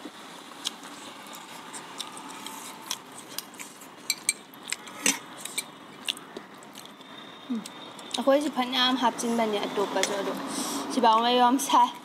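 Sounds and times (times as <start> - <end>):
forks clinking against dishes: 4.1 - 4.4.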